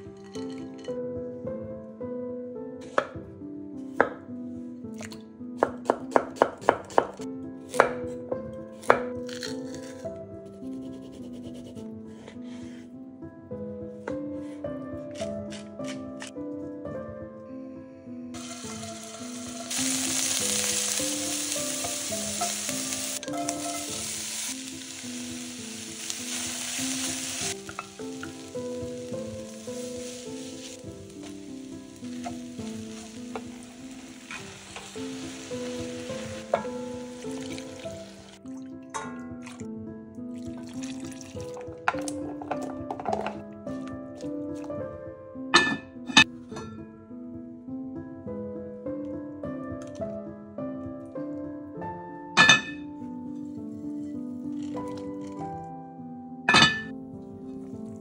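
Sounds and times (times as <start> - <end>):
light background melody: 0.0 - 58.0
meat and onions sizzling in oil: 18.4 - 38.4.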